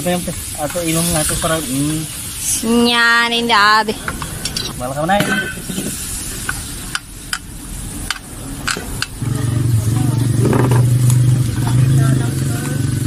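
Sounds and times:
pork sizzling on grill pan: 0:00.0 - 0:13.0
low engine hum: 0:07.6 - 0:13.0.

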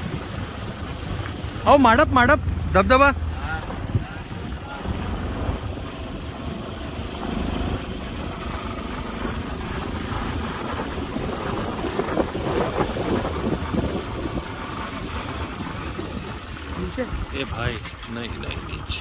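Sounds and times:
motorcycle engine rumbling: 0:00.0 - 0:19.0.

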